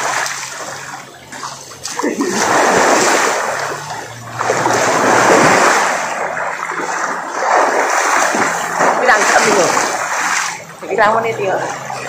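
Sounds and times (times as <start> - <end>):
people swimming and splashing water: 0.0 - 12.0.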